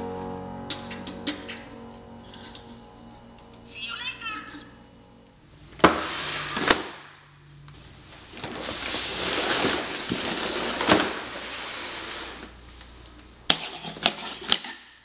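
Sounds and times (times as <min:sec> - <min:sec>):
cardboard scraping on table: 0:05.8 - 0:06.8, 0:08.5 - 0:12.5.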